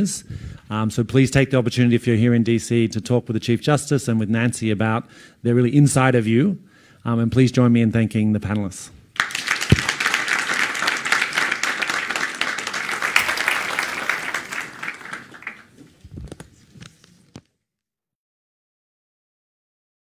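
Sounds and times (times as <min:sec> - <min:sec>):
audience applauding: 0:09.2 - 0:16.0.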